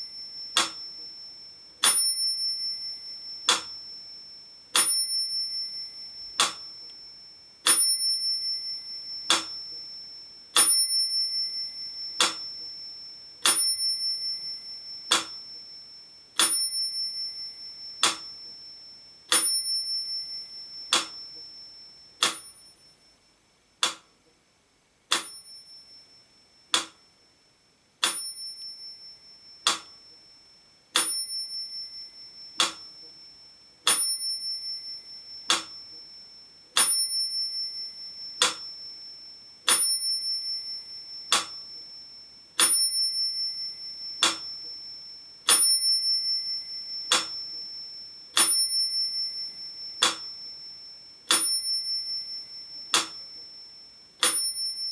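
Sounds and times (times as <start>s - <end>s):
metronome ticking: 0.0s - 1.2s, 1.8s - 3.9s, 6.3s - 7.0s, 7.6s - 12.8s, 13.4s - 15.7s, 16.4s - 18.6s, 19.3s - 22.7s, 23.8s - 24.2s, 25.1s - 25.9s, 26.7s - 27.2s, 29.5s - 30.2s, 31.0s - 31.8s, 32.4s - 36.2s, 36.8s - 39.1s, 39.7s - 42.0s, 42.6s - 54.9s
small bell ringing: 0.0s - 23.2s, 25.2s - 54.9s.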